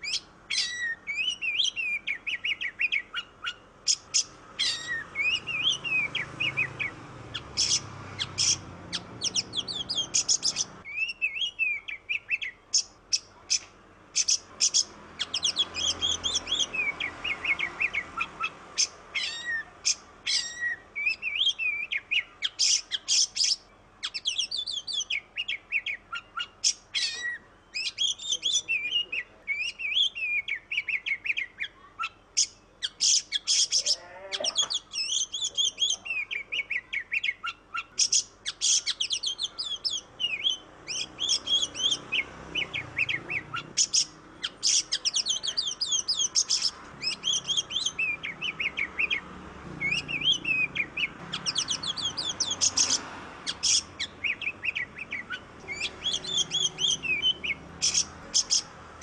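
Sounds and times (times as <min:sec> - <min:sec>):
bird singing: 0:00.0 - 0:59.0.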